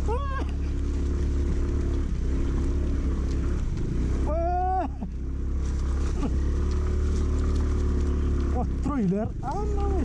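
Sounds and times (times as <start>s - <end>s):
person calling out: 0.0s - 0.6s, 9.4s - 10.0s
scooter engine running: 0.0s - 10.0s.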